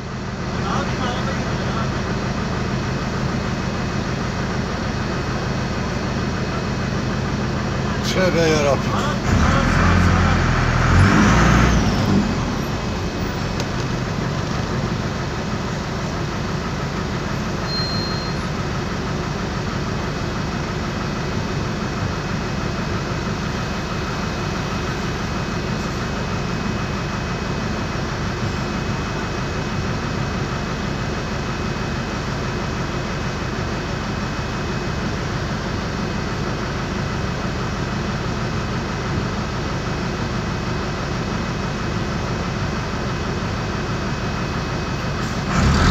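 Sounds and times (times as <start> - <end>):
diesel bus engine idling: 0.0 - 45.9
loud noise: 8.1 - 14.3, 45.2 - 45.9.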